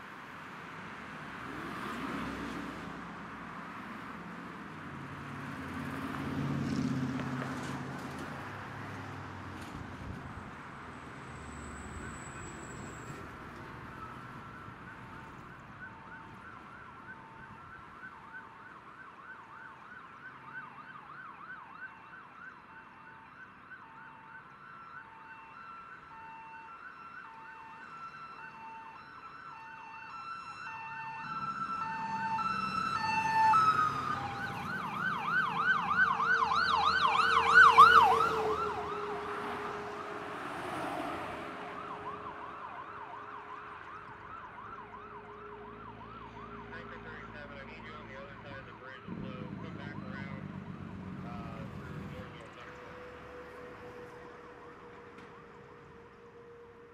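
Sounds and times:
electronic sirens warbling: 0:28.3 - 0:40.1, 0:41.6 - 0:54.9.

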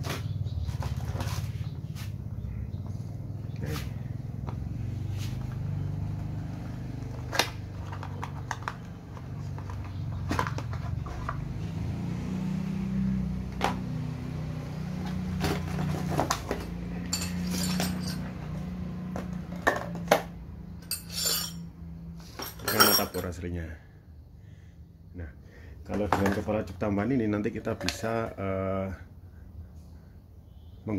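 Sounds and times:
light metal clinks: 0:17.1 - 0:18.2.

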